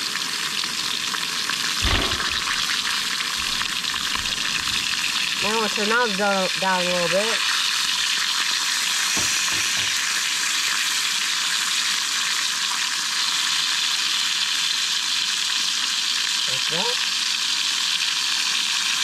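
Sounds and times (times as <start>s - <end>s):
bacon sizzling in a pan: 0.0s - 19.0s
brief knock: 1.8s - 2.8s, 9.2s - 10.0s.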